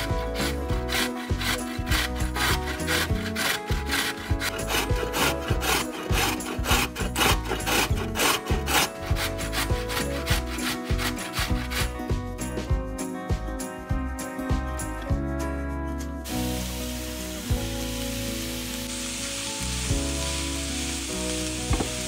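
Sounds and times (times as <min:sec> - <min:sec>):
rhythmic rasping strokes: 0:00.0 - 0:12.2
background music: 0:00.0 - 0:22.0.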